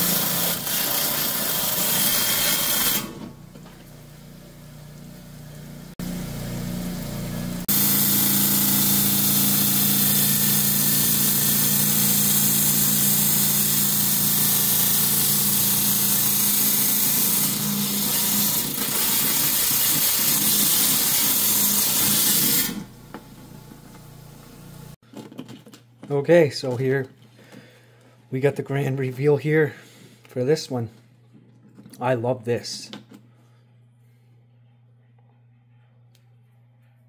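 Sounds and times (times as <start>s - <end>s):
band saw cutting stone: 0.0s - 3.2s, 7.6s - 22.9s.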